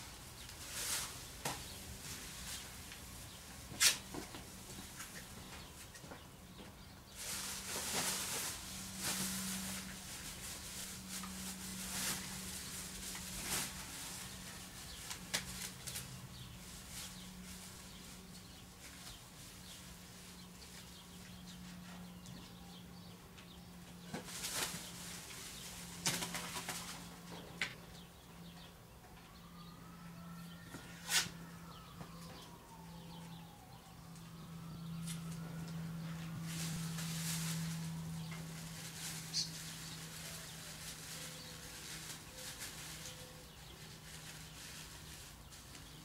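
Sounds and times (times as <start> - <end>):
steady low hum: 0.0 - 43.5
plastic film crinkling: 7.2 - 19.3, 36.3 - 45.9.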